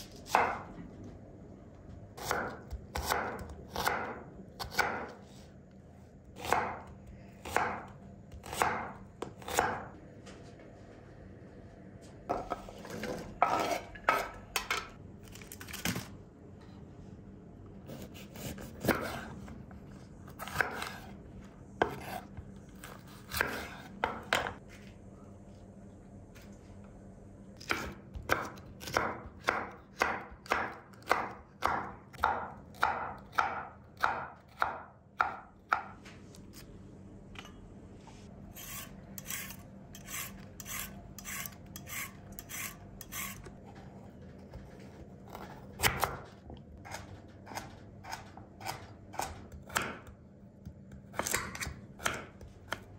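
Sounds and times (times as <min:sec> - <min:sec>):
knife slicing peppers on board: 0:17.9 - 0:19.4.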